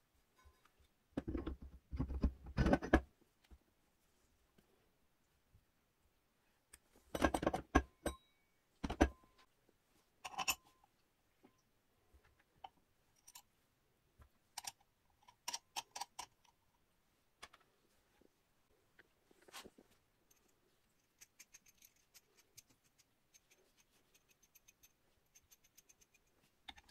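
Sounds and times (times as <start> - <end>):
metal parts clinking and knocking: 10.2 - 10.7.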